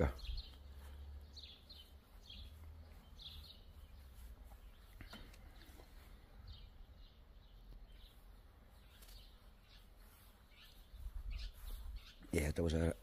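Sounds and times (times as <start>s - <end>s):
songbirds chirping: 0.0s - 13.0s.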